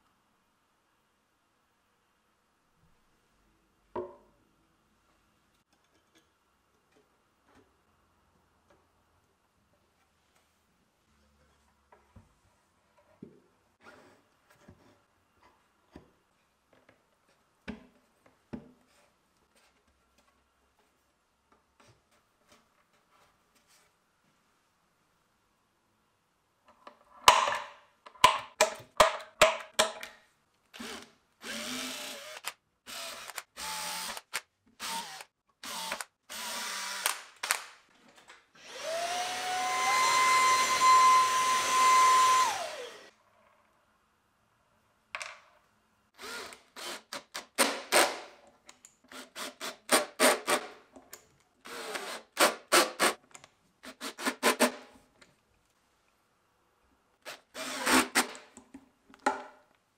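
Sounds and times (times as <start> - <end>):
electric drill-driver bursts: 30.8 - 37.7, 38.6 - 43.1, 57.3 - 58.3
handheld vacuum motor whine: 38.6 - 43.1.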